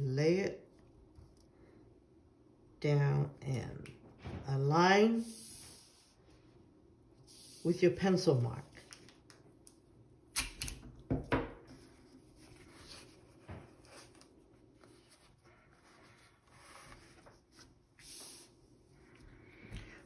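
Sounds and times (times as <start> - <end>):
soft rubbing and handling: 11.6 - 20.0.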